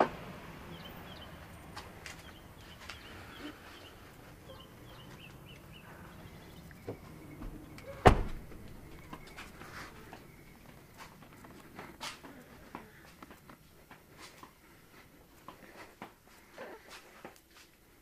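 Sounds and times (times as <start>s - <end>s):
car door slamming: 7.4s - 8.6s.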